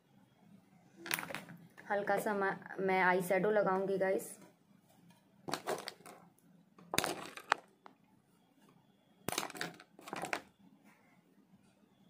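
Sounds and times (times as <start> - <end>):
containers rustling and clicking: 5.5 - 8.0, 9.3 - 10.5.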